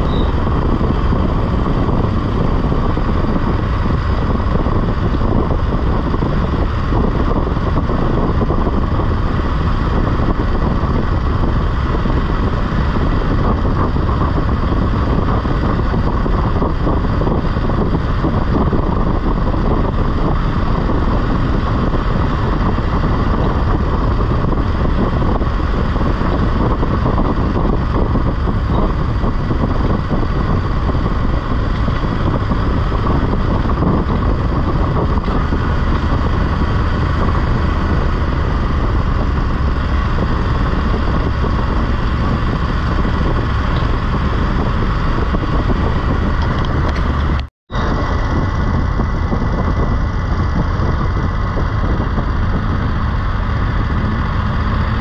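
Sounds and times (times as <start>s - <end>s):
motorcycle engine running: 0.0s - 55.0s
wind rush over microphone: 0.0s - 55.0s.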